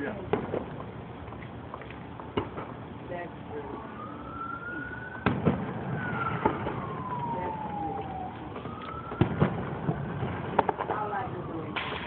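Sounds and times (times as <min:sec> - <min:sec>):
distant siren wailing: 0:03.4 - 0:12.0
firework bangs: 0:05.2 - 0:08.0, 0:08.6 - 0:12.0.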